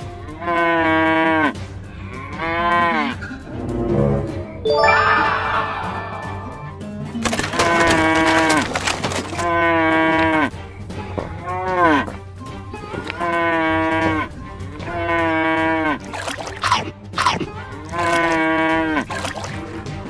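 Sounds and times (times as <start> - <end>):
faint background music: 0.0 - 20.0
cattle mooing: 0.4 - 3.3, 13.2 - 16.0, 17.8 - 19.1.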